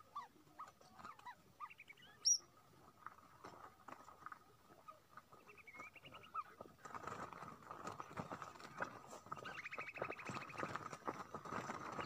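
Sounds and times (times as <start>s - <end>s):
fast rattling bird calls: 5.5s - 12.0s
bird wings fluttering and rustling: 6.6s - 12.0s.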